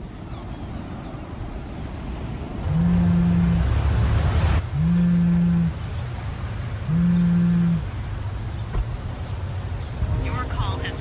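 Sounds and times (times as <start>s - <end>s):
low horn-like electronic blast: 4.8s - 5.7s.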